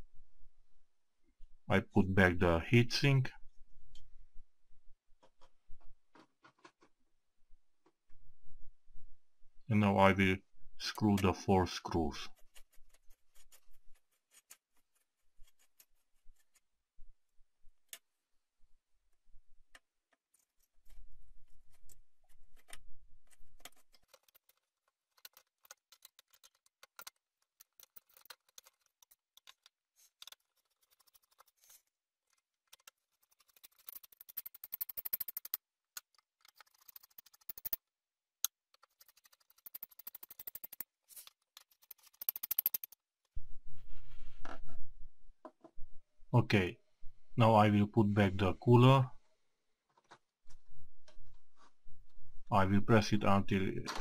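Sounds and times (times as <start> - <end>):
screwdriver metal clicks and scrapes: 21.7 - 37.8, 38.4 - 43.0.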